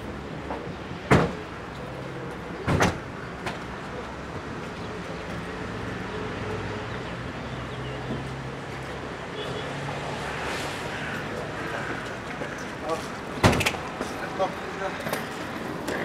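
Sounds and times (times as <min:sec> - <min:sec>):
car door slamming: 0:13.4 - 0:13.8.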